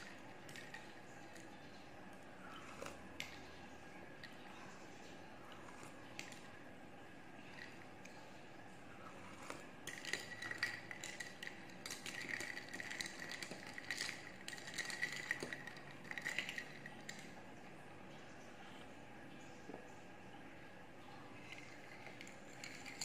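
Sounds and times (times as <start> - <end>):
spoon clinking glass and ice: 9.8 - 17.3, 21.4 - 23.0.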